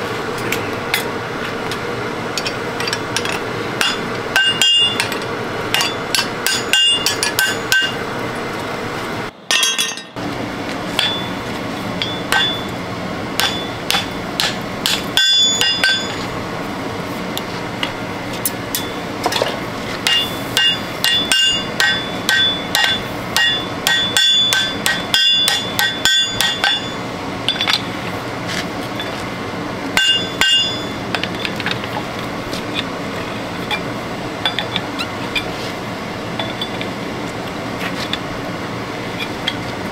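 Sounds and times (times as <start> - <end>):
steady background noise: 0.0 - 39.9
hammer striking steel on anvil: 2.4 - 8.0, 9.5 - 10.2, 10.9 - 11.4, 12.0 - 12.8, 13.4 - 16.3, 17.8 - 19.4, 20.0 - 27.9, 30.0 - 31.7.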